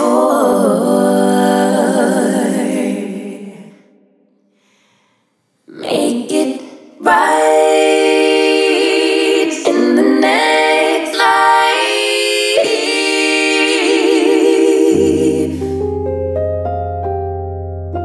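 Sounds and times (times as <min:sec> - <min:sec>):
solo voice singing with vibrato: 0:00.0 - 0:03.7, 0:05.7 - 0:15.8.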